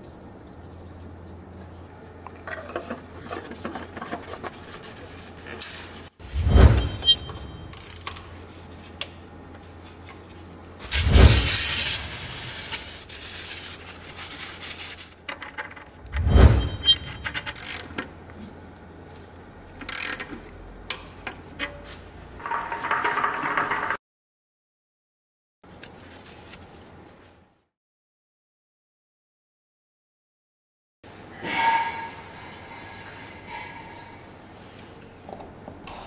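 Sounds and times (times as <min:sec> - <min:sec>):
metal scraping: 0:02.6 - 0:08.4, 0:10.8 - 0:13.6, 0:15.4 - 0:18.0, 0:31.2 - 0:34.7.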